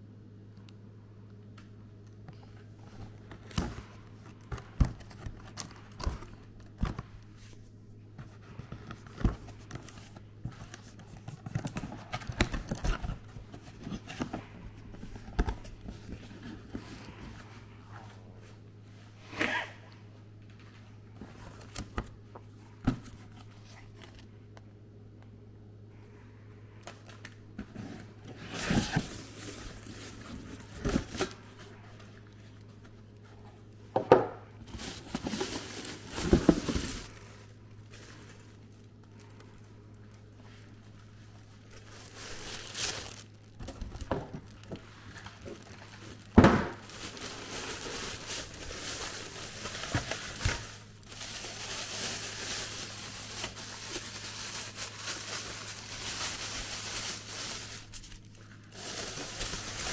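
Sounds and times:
plastic bag crinkling: 28.1s - 33.2s, 34.6s - 59.9s.

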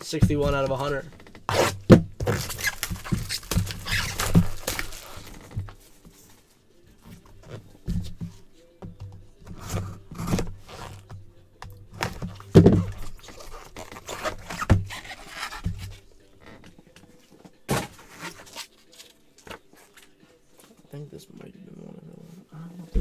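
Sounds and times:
box thuds: 0.2s - 5.8s, 12.0s - 15.0s, 17.7s - 18.1s
cardboard scraping and rubbing: 1.0s - 5.8s, 9.5s - 11.1s, 12.0s - 16.0s, 17.7s - 18.7s.

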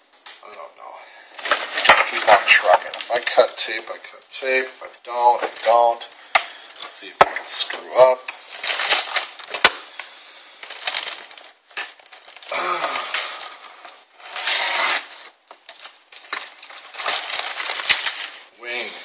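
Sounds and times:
rustling and scraping: 1.4s - 19.0s.

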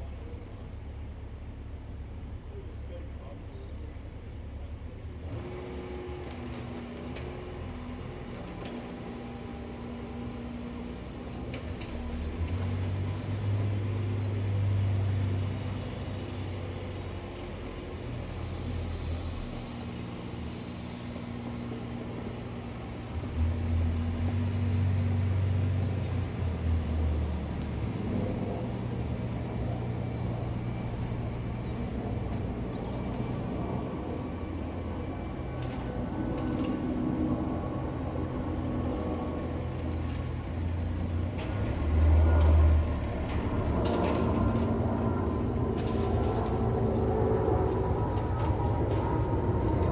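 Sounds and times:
jet airliner flying overhead: 13.9s - 49.9s.

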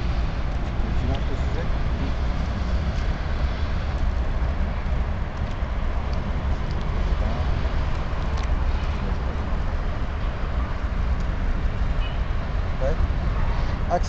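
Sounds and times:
distant city traffic: 0.0s - 14.0s.

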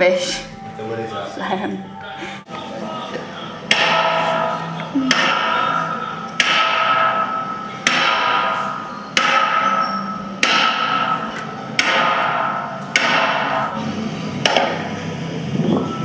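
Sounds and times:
sharp ringing strikes: 3.7s - 13.8s.

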